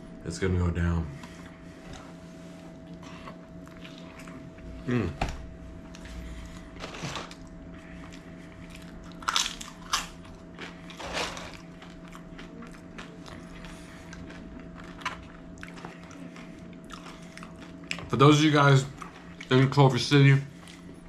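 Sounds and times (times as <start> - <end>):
faint steady hum: 0.0 - 21.0
person chewing food: 2.6 - 4.7, 5.8 - 18.1.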